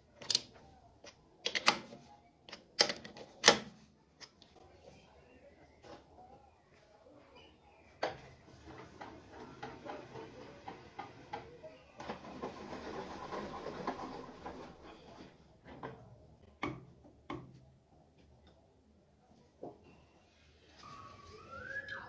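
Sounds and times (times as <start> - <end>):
lathe carriage clicking: 8.5 - 15.1.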